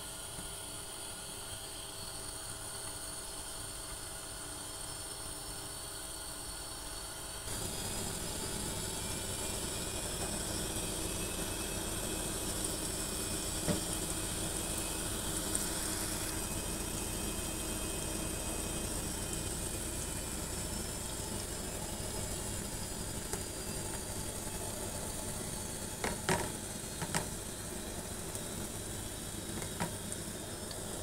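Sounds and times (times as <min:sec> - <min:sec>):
onions sizzling in hot oil: 0:07.5 - 0:31.0.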